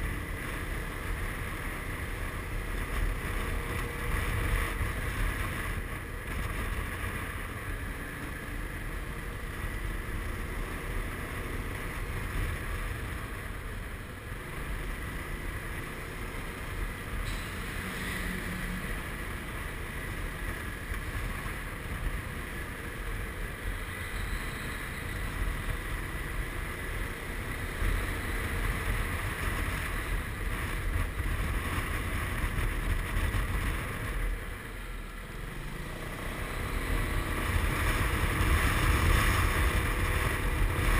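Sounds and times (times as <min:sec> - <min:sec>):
wind rumble on microphone: 0:27.5 - 0:34.9, 0:36.2 - 0:40.9
scooter engine: 0:32.2 - 0:40.9.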